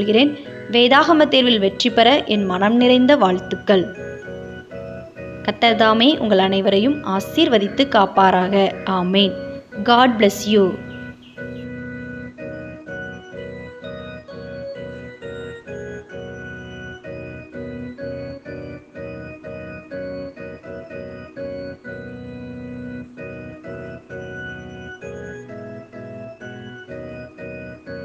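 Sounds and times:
organ-like keyboard chords: 0.0 - 28.0.

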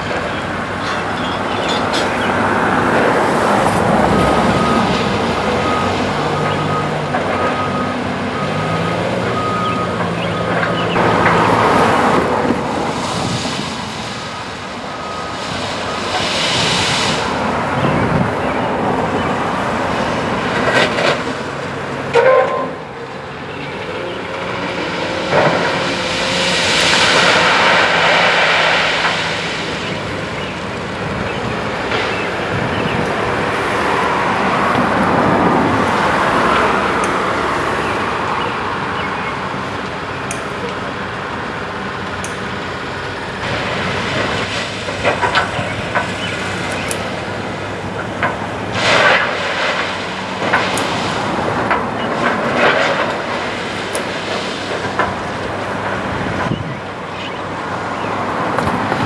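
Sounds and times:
rock ballast pouring out: 25.2 - 31.0, 48.7 - 56.1.

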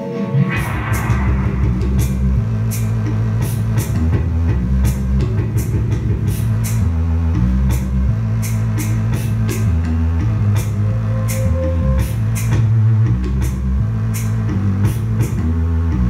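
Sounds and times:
low guitar chords: 0.0 - 16.0
cymbal hits: 0.4 - 4.0.

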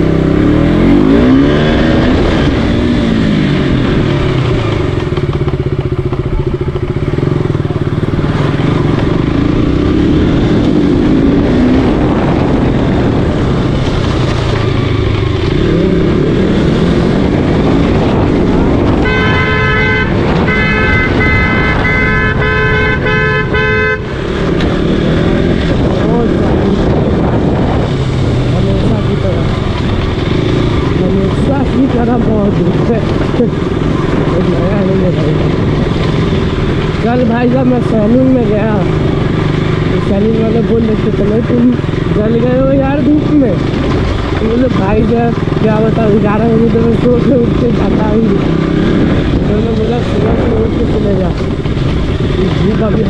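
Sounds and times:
motorcycle engine revving: 0.0 - 53.0
horn blasts: 18.9 - 24.4.

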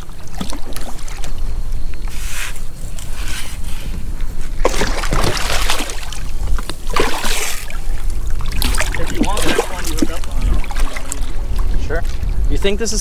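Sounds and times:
steady low rumble: 0.0 - 13.0
fish thrashing and splashing: 4.6 - 12.4.

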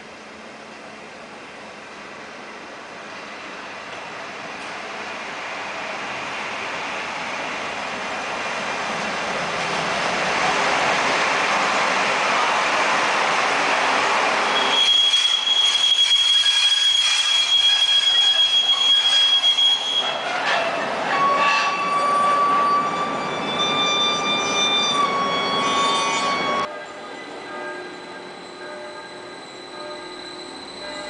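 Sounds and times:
electric locomotive passing: 0.0 - 31.0
high-pitched wheel squeal: 14.4 - 26.7, 27.8 - 31.0.

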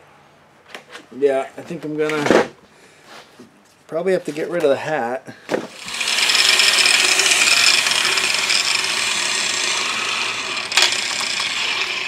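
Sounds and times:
angle grinder cutting sheet steel: 5.7 - 12.0.

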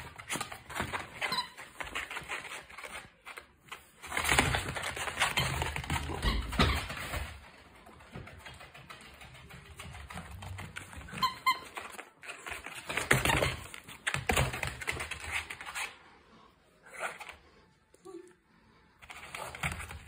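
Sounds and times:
dog claws clicking on floor: 0.0 - 15.9
toy squeak: 11.1 - 11.9.

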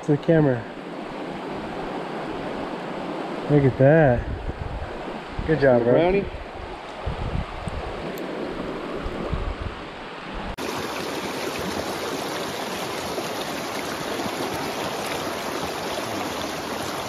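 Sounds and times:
wind on microphone: 0.7 - 12.0
creek water rushing over rocks: 7.9 - 17.0.

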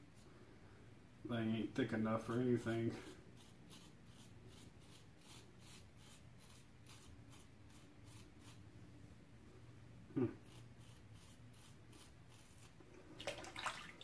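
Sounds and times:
razor scraping stubble: 1.8 - 8.6, 10.2 - 12.8.

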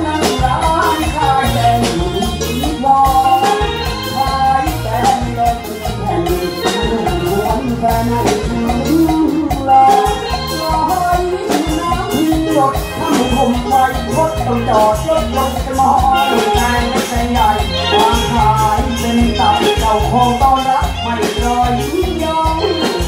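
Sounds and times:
band playing lively instrumental: 0.0 - 23.0
steady drum beat: 0.0 - 23.0.

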